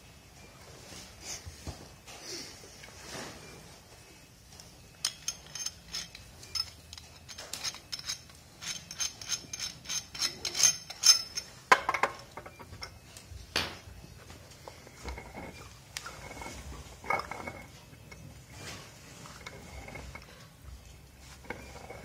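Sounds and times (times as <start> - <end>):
metallic clinking of pipe wrench: 5.0 - 13.0, 14.8 - 18.3, 21.4 - 22.0.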